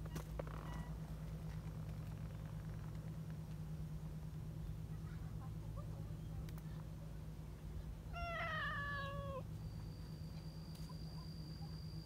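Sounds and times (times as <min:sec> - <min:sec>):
cat meowing: 0:08.2 - 0:09.4.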